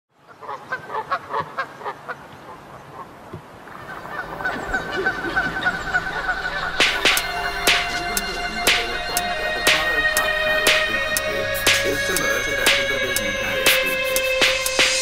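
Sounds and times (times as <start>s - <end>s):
sustained wavering tone: 5.6s - 15.0s.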